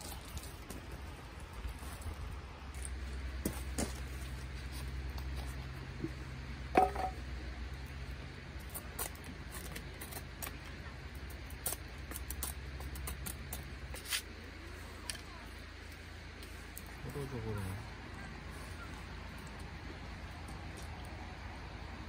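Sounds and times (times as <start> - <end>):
low steady hum: 0.0 - 22.0
knife shaving wood: 8.6 - 16.9.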